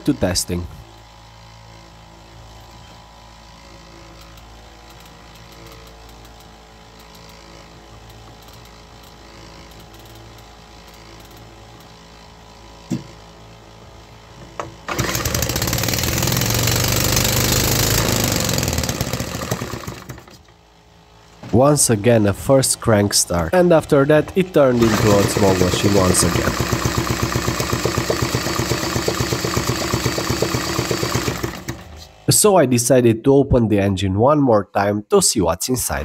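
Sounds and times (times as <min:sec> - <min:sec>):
steady low hum: 0:00.0 - 0:14.9, 0:20.4 - 0:30.7
small petrol engine running: 0:14.8 - 0:21.0, 0:23.1 - 0:32.3.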